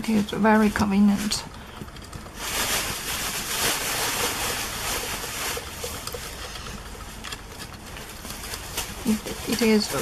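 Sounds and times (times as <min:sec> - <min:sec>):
cables rustling: 0:00.1 - 0:10.0.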